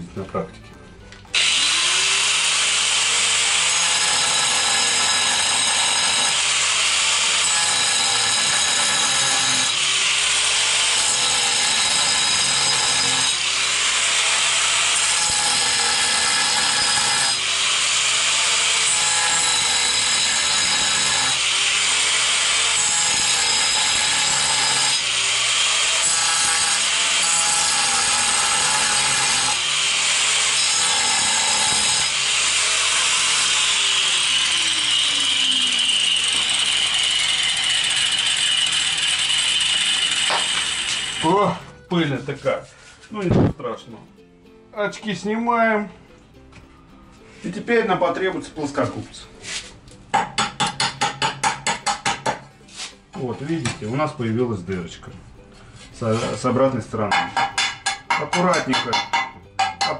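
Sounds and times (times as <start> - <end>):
angle grinder cutting tile: 1.3 - 41.8, 56.0 - 59.9.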